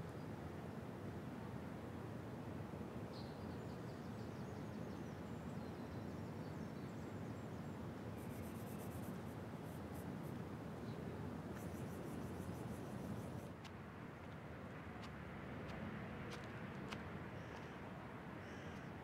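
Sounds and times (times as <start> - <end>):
faint bird chirps: 5.7 - 9.3.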